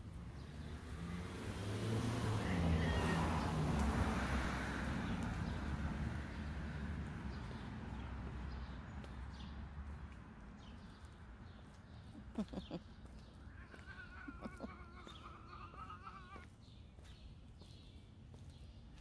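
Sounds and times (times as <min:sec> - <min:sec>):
car passing by: 0:00.1 - 0:10.0.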